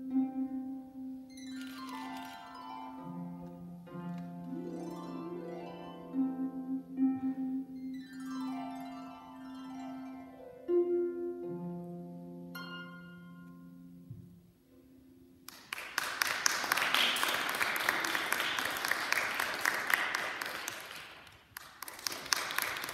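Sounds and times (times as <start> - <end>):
harp plucked notes: 0.0 - 15.4
audience applauding: 15.4 - 22.9.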